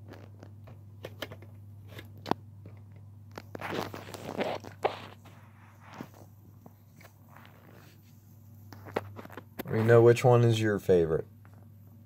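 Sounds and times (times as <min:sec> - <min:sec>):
steady low hum: 0:00.0 - 0:12.0
soft rustling: 0:03.3 - 0:10.2.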